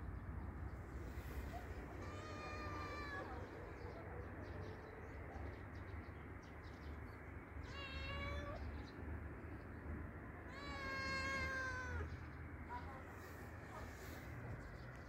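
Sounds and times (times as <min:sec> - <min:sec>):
cat meowing: 0:01.9 - 0:03.5, 0:07.6 - 0:08.7, 0:10.5 - 0:12.2.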